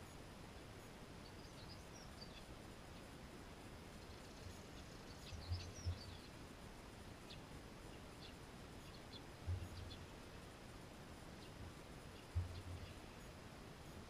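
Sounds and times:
low muffled thumps: 0:09.4 - 0:10.0, 0:12.3 - 0:12.9.

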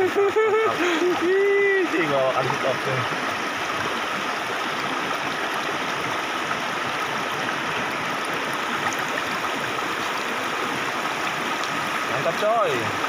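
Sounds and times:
river rushing over stones: 0:00.0 - 0:13.0.

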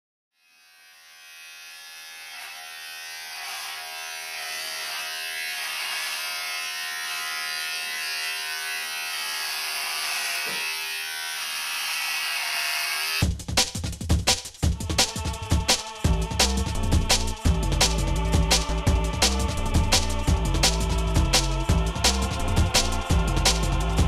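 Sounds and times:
electric hair trimmer buzzing: 0:00.4 - 0:13.2.

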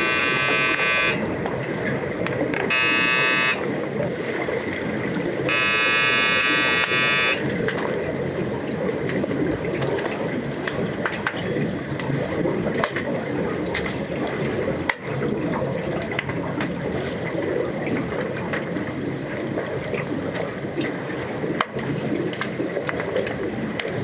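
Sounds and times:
muffled underwater rush of water: 0:00.0 - 0:24.0.

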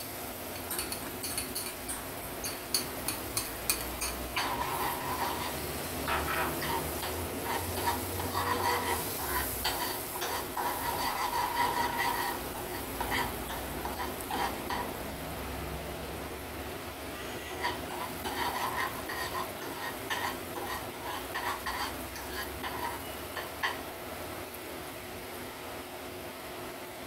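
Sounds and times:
oil sizzling: 0:00.0 - 0:26.0
metal spoon scraping a pan: 0:00.7 - 0:15.1, 0:17.2 - 0:23.9.

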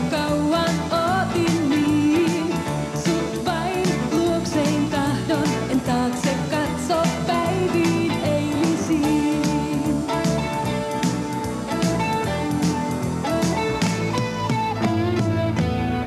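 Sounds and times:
woman singing pop song: 0:00.0 - 0:11.2
band with steady beat: 0:00.0 - 0:16.0.

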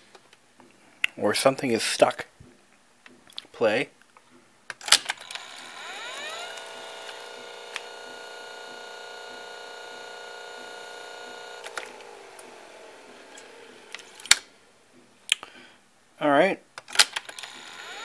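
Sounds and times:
motor whining: 0:05.1 - 0:15.1, 0:17.2 - 0:18.0.

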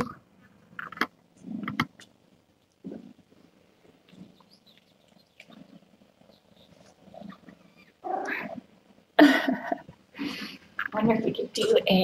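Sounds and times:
soft low cat sounds: 0:00.0 - 0:10.9.

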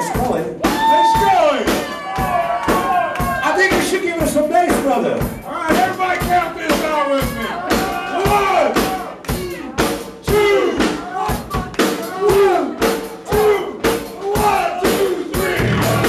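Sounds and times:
drum kit beating: 0:00.0 - 0:16.0
rock band playing: 0:00.0 - 0:16.0
sliding pitched notes: 0:15.6 - 0:16.0.

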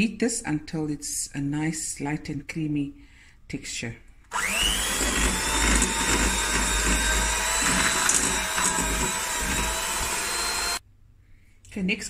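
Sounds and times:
electric hand mixer whining: 0:04.3 - 0:10.8.

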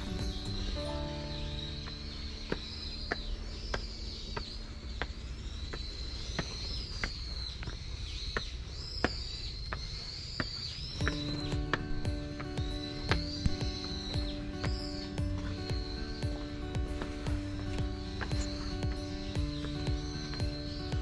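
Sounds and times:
background music: 0:00.0 - 0:05.6, 0:11.0 - 0:21.0
birds chirping: 0:00.0 - 0:21.0
footsteps on stone stairs: 0:00.0 - 0:21.0.

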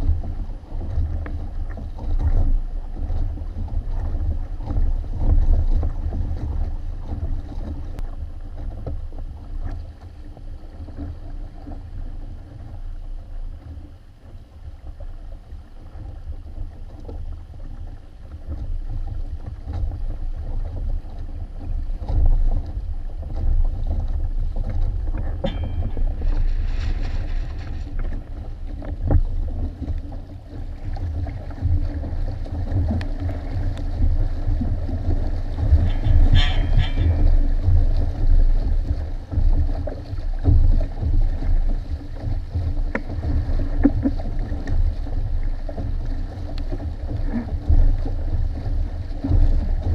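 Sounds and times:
water splashing along hull: 0:00.0 - 0:49.9
wind buffeting microphone: 0:14.6 - 0:49.9.

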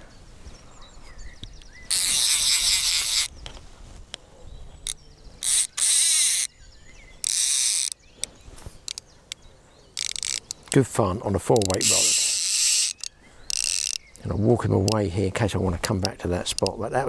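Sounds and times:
fishing reel ratchet buzzing: 0:01.9 - 0:03.3, 0:05.4 - 0:06.5, 0:07.2 - 0:08.0, 0:10.0 - 0:10.8, 0:11.6 - 0:14.0.

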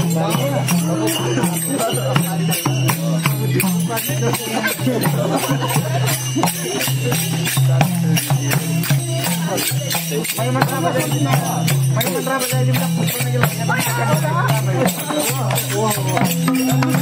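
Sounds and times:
hand drum beating: 0:00.0 - 0:17.0
jingling percussion: 0:00.0 - 0:17.0.

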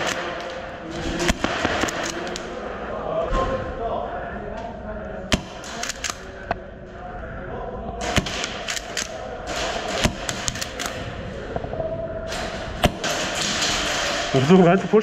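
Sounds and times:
airsoft guns firing: 0:00.0 - 0:02.6, 0:05.3 - 0:06.3, 0:08.0 - 0:11.0, 0:12.8 - 0:14.9.

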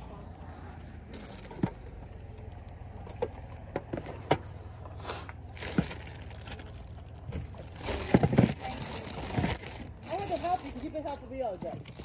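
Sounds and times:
plastic bag rustling: 0:05.4 - 0:12.0
items knocking and clacking: 0:07.3 - 0:12.0.

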